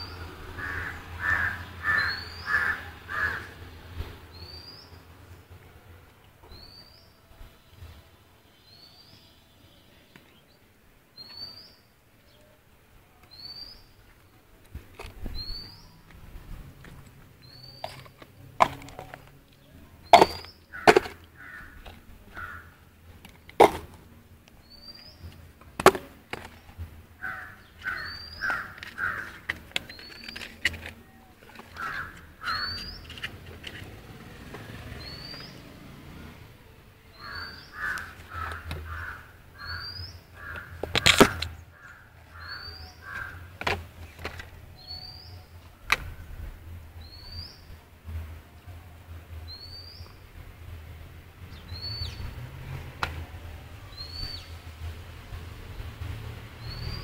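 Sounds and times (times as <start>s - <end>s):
crow-like caws: 0.6s - 3.6s, 20.7s - 22.8s, 27.2s - 29.4s, 31.7s - 32.7s, 37.2s - 40.8s, 41.8s - 43.5s
small bird high chirp: 32.4s - 33.3s, 42.4s - 43.0s.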